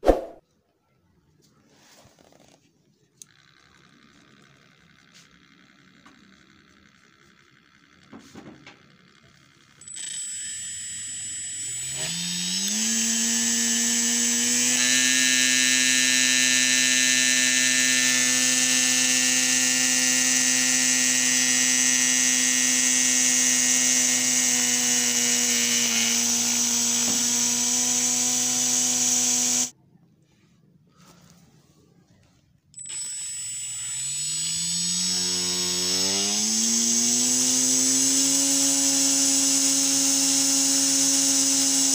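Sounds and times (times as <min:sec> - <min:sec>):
electric motor whining: 0:03.2 - 0:29.7, 0:32.8 - 0:41.9.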